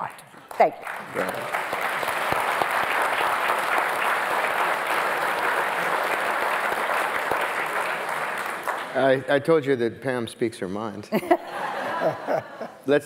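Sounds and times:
audience applauding: 0.4s - 9.4s.

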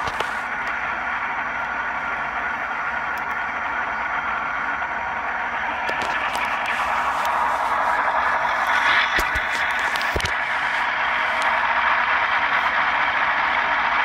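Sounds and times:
diesel engine sound from small speaker: 0.0s - 14.0s.

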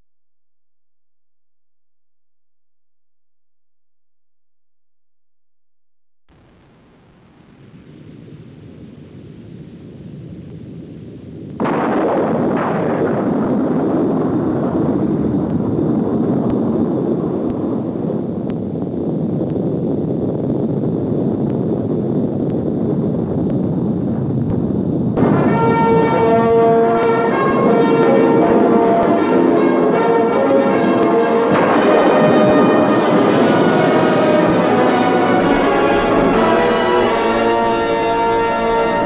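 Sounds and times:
low rumble: 6.3s - 29.2s, 31.5s - 39.0s
bells pealing: 25.2s - 39.0s
loud dense roar: 25.2s - 39.0s.

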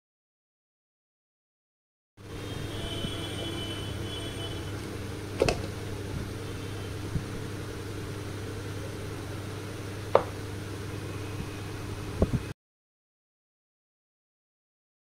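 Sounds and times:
low electrical hum: 2.2s - 12.6s.

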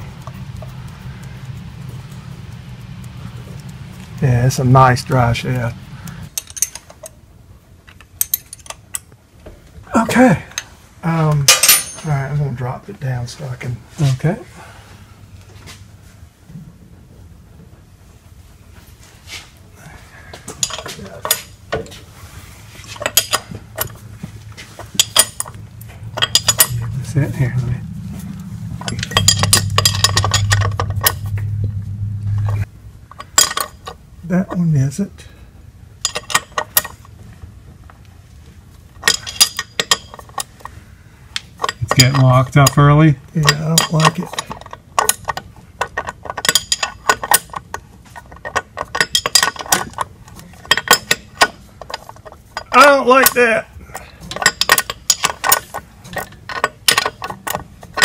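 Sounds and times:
steady low hum: 0.0s - 58.0s
metal hand tools clinking: 11.4s - 12.3s, 20.6s - 21.6s, 22.9s - 24.0s, 24.8s - 27.2s, 28.4s - 31.4s, 39.0s - 40.7s, 41.4s - 58.0s
ratcheting wrench clicking: 24.8s - 26.9s, 28.8s - 31.4s, 43.4s - 50.1s, 54.3s - 58.0s.

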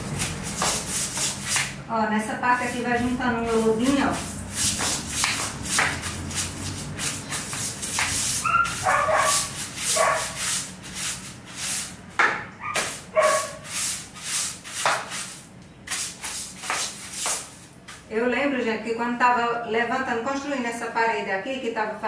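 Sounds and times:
broom scrubbing tiled floor: 0.0s - 18.1s.

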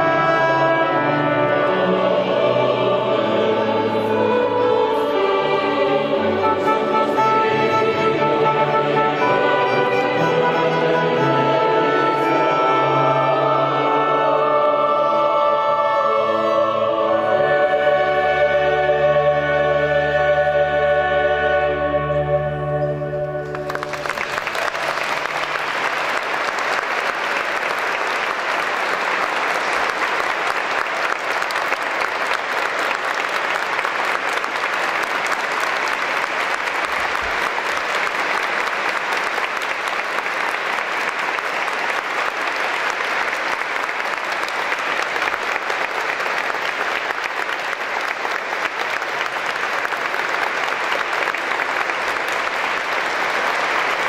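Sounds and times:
choir and orchestra chord: 0.0s - 25.5s
audience applauding: 23.4s - 54.0s.

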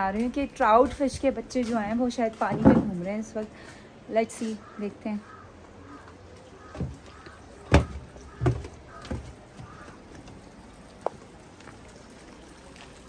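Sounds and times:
faint outdoor background: 0.0s - 13.0s
crow cawing: 4.4s - 10.1s
footsteps on wooden floor: 6.6s - 10.0s.

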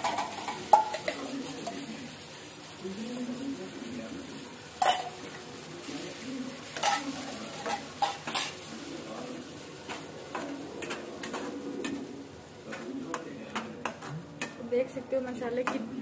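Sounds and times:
oil sizzling: 0.0s - 16.0s
spatula scraping pan: 5.9s - 14.1s.

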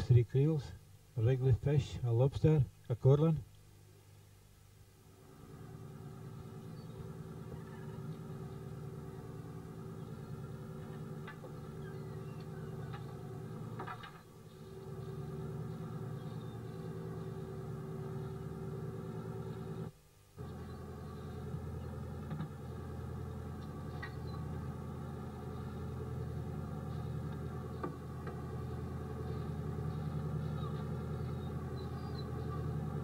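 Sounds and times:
boat engine running: 5.5s - 33.0s.

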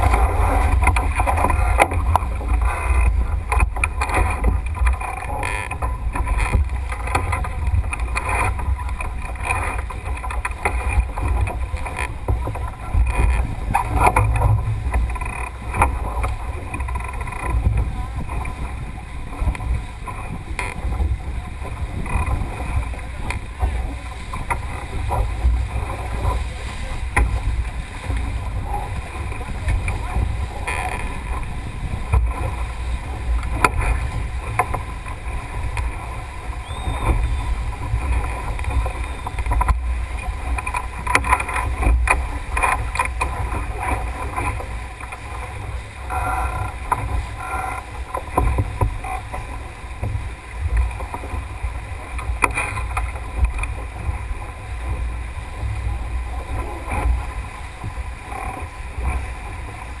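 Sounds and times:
water rushing along hull: 0.0s - 60.0s
wind rumbling on microphone: 0.0s - 60.0s.

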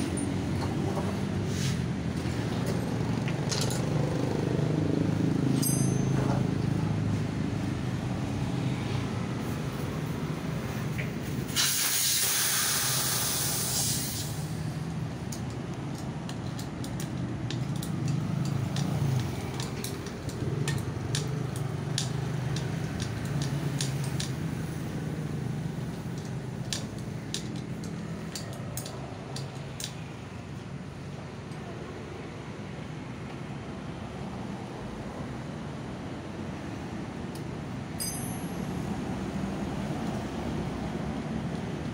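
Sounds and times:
air hissing from tyre valve: 11.2s - 14.8s
metallic clicks and taps: 14.8s - 24.5s, 25.9s - 30.1s.

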